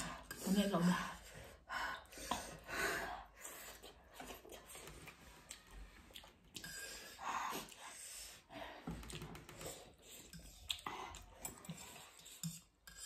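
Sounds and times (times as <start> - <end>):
breathing: 1.1 - 3.9, 6.7 - 10.3
slurping noodles: 3.5 - 8.5
chewing: 3.8 - 8.0, 8.9 - 13.0.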